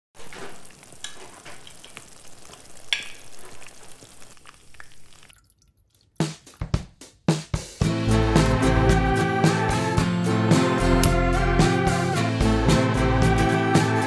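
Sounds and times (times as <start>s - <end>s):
curry sizzling in a pot: 0.2s - 5.4s
water splashing into a metal bowl: 0.2s - 6.9s.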